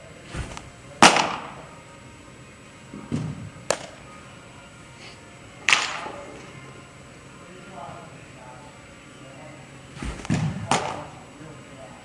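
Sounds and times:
baseball smacking: 0.4 - 1.7, 2.9 - 4.1, 5.6 - 6.5, 10.0 - 11.2
dull thump: 10.0 - 10.9.

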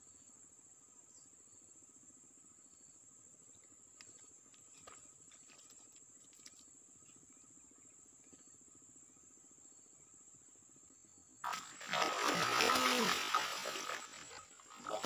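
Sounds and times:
high insect buzz: 9.7 - 15.0
fish splashing in water: 11.4 - 15.0.

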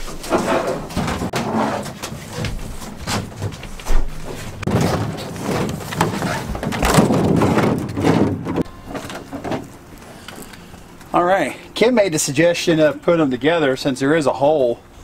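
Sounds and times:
plastic panel bumping and scraping: 0.0 - 9.7
heavy thumps: 0.1 - 9.7.

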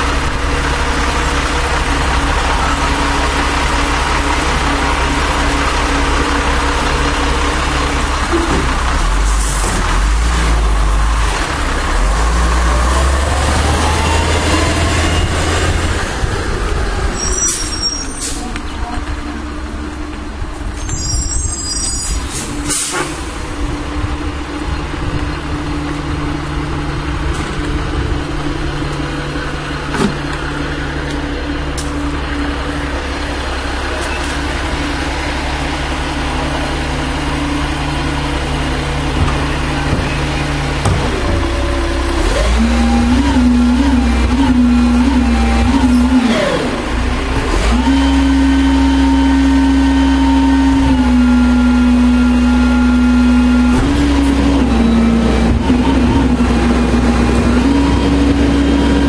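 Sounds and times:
garbage truck engine running: 0.0 - 59.0
air brake hisses: 17.3 - 18.5, 20.9 - 23.2.

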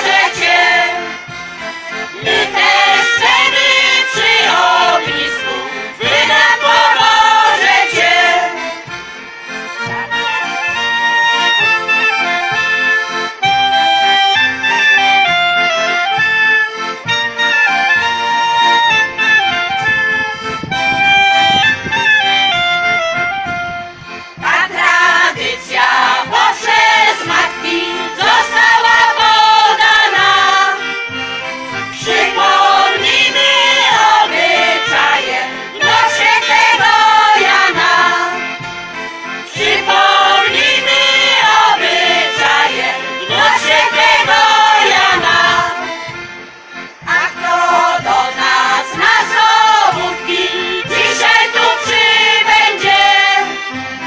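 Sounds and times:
women's voices singing folk song: 0.0 - 12.7, 24.2 - 54.0
accordion: 0.0 - 54.0.

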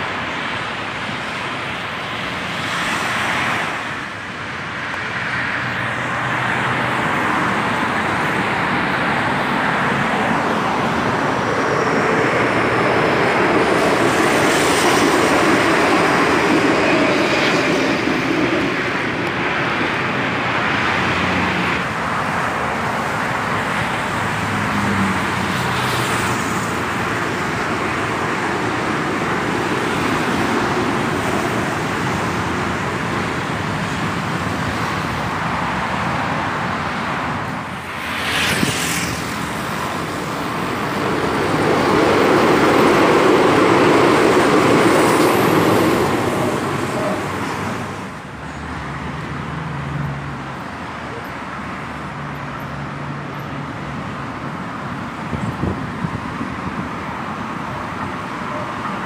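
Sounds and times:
road traffic noise: 0.0 - 59.0
vehicle passing: 37.3 - 50.4.

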